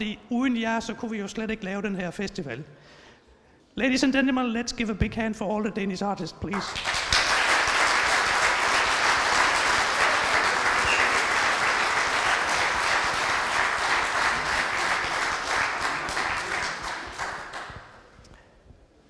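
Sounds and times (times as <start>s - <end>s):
audience applauding: 6.6s - 18.2s.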